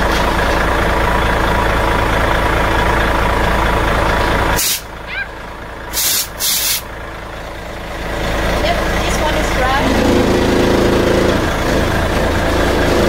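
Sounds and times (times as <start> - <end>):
engine idling: 0.0 - 13.0
compressed air blasting: 4.6 - 4.9, 5.9 - 6.9.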